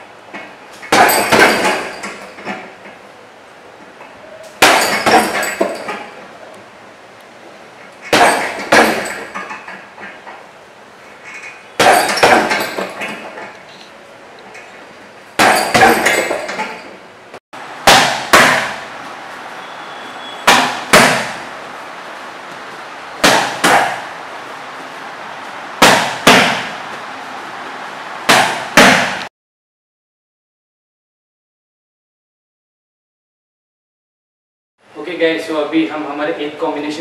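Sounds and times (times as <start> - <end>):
strikes smacking strike shield: 17.8 - 18.8, 20.5 - 21.4, 23.2 - 24.0, 25.8 - 26.8, 28.3 - 29.2.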